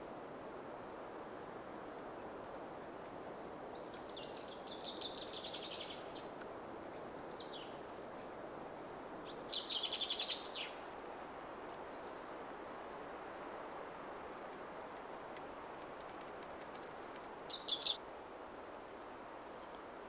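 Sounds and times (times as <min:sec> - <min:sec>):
songbird trilling: 0:16.6 - 0:18.0.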